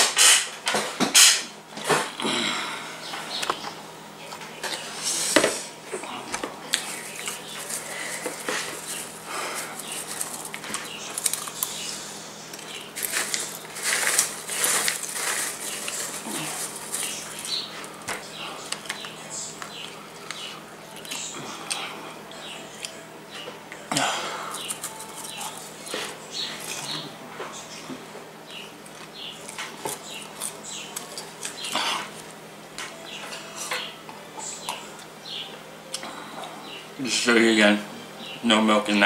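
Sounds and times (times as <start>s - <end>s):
popcorn rustling in plastic bowl: 6.7s - 11.9s, 12.6s - 19.1s, 24.5s - 27.0s
crunchy chewing: 6.7s - 22.0s, 24.5s - 27.1s, 28.8s - 32.4s.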